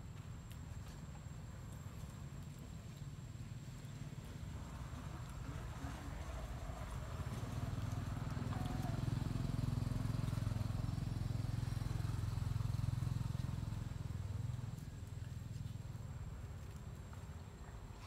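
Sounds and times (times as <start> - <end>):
motorcycle engine humming: 2.8 - 16.5.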